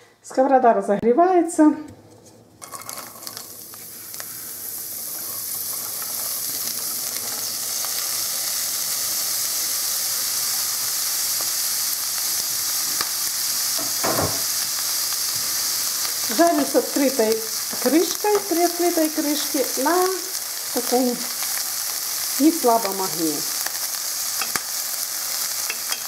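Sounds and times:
food sizzling in a pan: 0:02.5 - 0:26.0
food pieces clicking into pan: 0:25.6 - 0:26.0.

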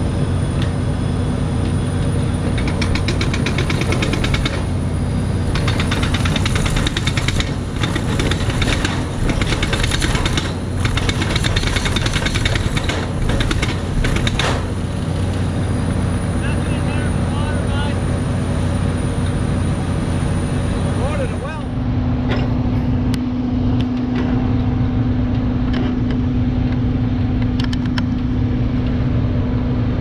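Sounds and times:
engine drone: 0:00.0 - 0:30.0
rock drill hammering: 0:02.4 - 0:04.7, 0:05.5 - 0:14.8.

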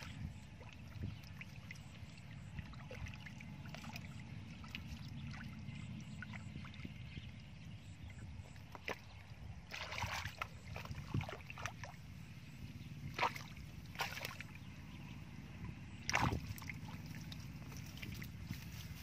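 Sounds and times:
hands splashing in water: 0:16.0 - 0:17.2.

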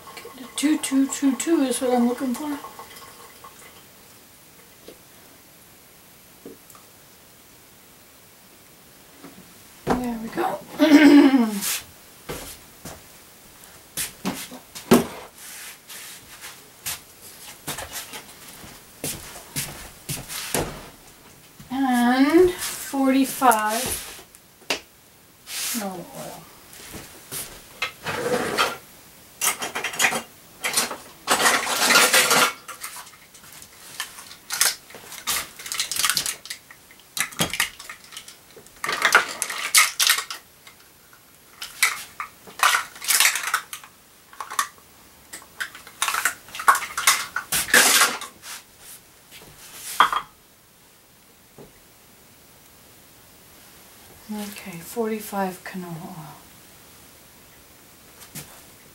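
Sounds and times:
longer scrapes or rustles: 0:11.4 - 0:12.6, 0:14.0 - 0:21.0, 0:21.9 - 0:24.3, 0:25.4 - 0:28.8, 0:47.5 - 0:50.1.

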